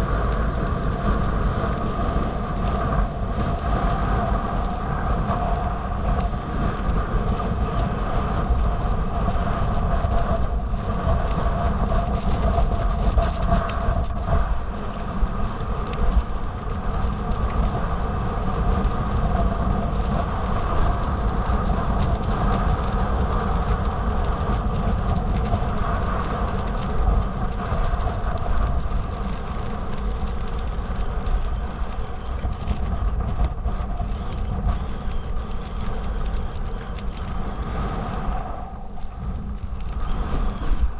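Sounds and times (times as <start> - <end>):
wind buffeting microphone: 0.0 - 40.9
snowboard sliding on packed snow: 37.4 - 40.9.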